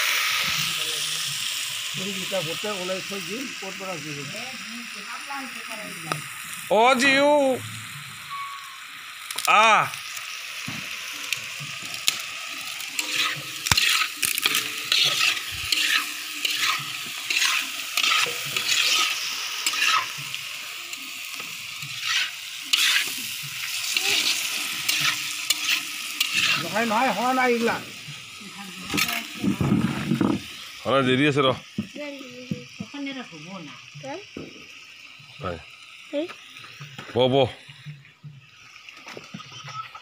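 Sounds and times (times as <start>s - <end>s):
meat sizzling in a wok: 0.0s - 40.0s
stirring and scraping in wok: 11.4s - 30.6s.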